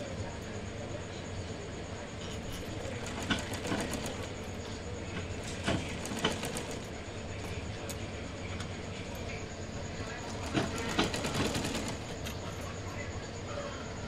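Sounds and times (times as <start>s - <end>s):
sewing machine clattering: 2.1s - 12.8s.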